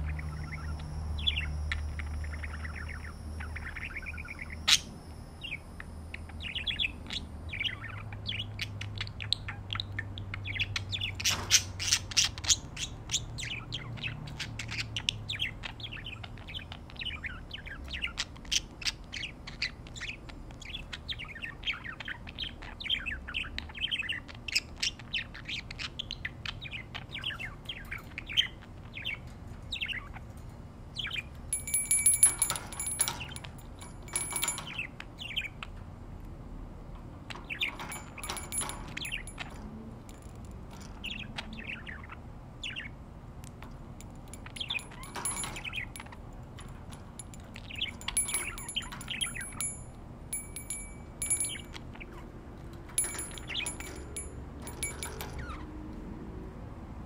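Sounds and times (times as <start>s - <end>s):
budgerigars chirping: 0.0s - 30.2s, 41.0s - 43.0s
bell-like ringing: 31.5s - 34.8s, 37.8s - 39.7s, 44.0s - 51.8s, 53.0s - 55.6s.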